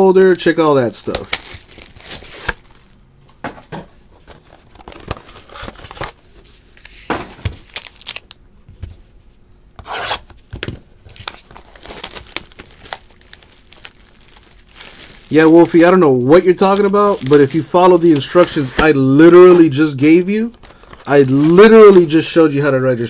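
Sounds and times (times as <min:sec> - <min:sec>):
plastic shrink wrap tearing: 0:00.2 - 0:03.0, 0:07.6 - 0:08.4, 0:11.1 - 0:23.0
wrap crinkling and rubbing: 0:00.7 - 0:03.0, 0:11.2 - 0:19.8, 0:20.4 - 0:22.2.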